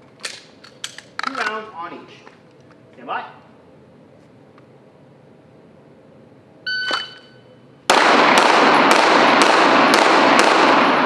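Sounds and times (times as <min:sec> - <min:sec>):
shot timer beep: 0:06.7 - 0:07.6
rapid pistol shots: 0:07.9 - 0:11.0.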